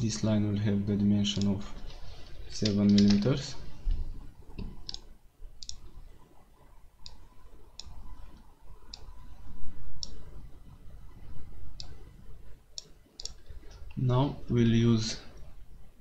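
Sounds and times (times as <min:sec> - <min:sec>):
low room rumble: 0:00.0 - 0:16.0
mouse buttons clicking: 0:04.6 - 0:05.8, 0:10.0 - 0:10.2.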